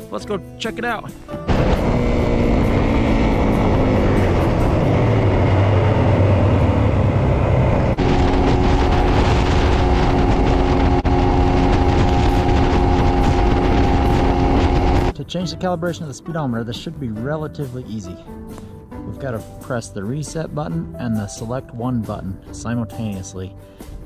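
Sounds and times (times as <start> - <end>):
wind rush: 1.5 - 15.1
motorcycle engine running: 1.5 - 15.2.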